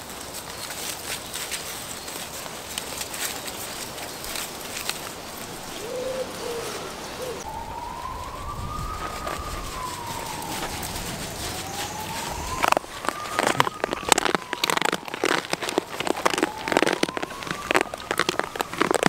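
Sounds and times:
siren wailing: 6.0 - 19.0.

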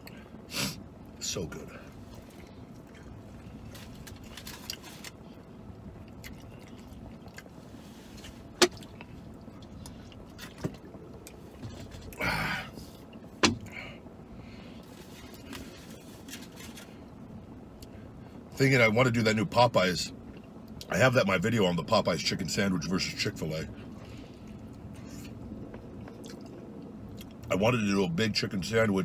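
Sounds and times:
steady low hum: 0.0 - 29.0
person chewing: 2.1 - 5.4, 6.0 - 12.2, 24.4 - 27.5.

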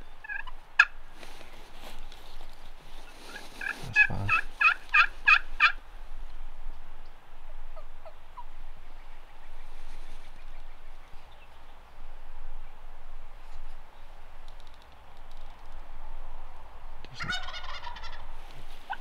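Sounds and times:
turkey yelping: 0.2 - 0.9, 3.3 - 5.8, 17.2 - 18.2.

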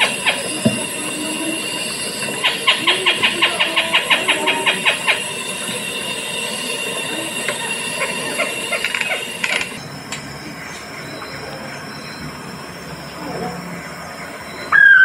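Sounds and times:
high electronic tone: 0.0 - 9.9
recorded bird calls: 0.0 - 15.0.

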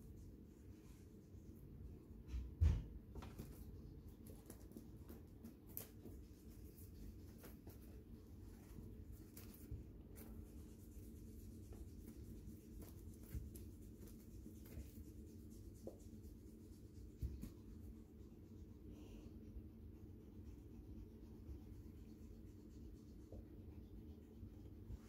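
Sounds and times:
low room hum: 0.0 - 25.0
toy scratching across carpet: 5.9 - 18.6.

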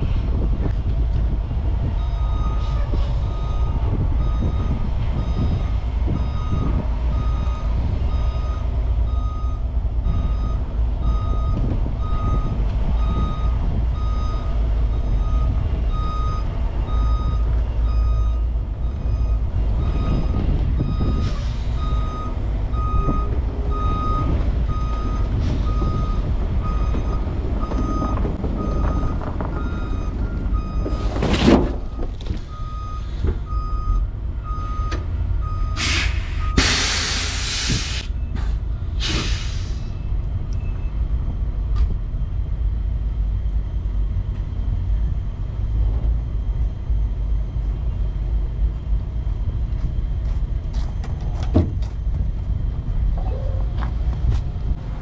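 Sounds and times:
diesel engine running: 0.0 - 55.0
truck backup alarm beeping: 1.8 - 41.1.

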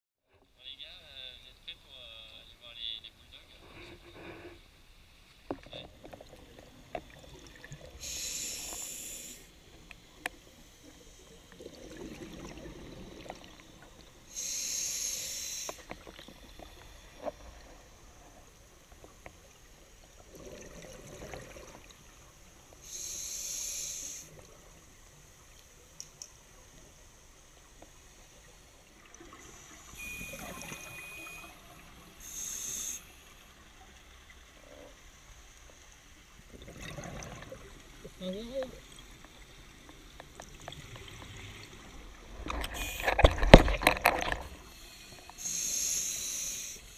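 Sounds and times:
diver breathing through regulator: 3.6 - 4.7, 8.0 - 9.6, 14.3 - 15.9, 22.8 - 24.4, 32.2 - 33.2, 44.6 - 46.9.

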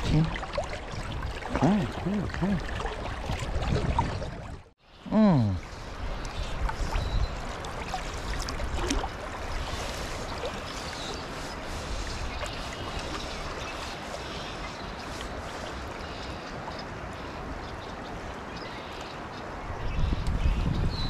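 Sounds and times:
wind on microphone: 0.0 - 4.7, 5.5 - 10.4, 19.6 - 21.0.

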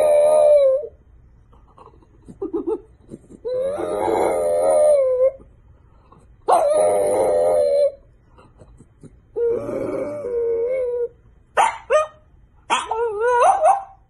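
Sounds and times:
dog howling: 0.0 - 1.0, 3.4 - 5.4, 6.5 - 8.0, 9.4 - 11.2, 12.7 - 14.0
dog whimpering: 0.0 - 1.0, 1.7 - 5.5, 6.4 - 11.2, 12.7 - 14.0.

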